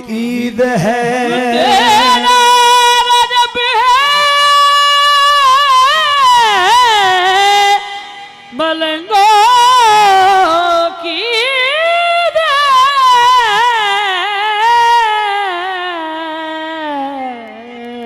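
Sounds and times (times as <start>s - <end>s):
singer's high ornamented voice: 1.0s - 6.5s.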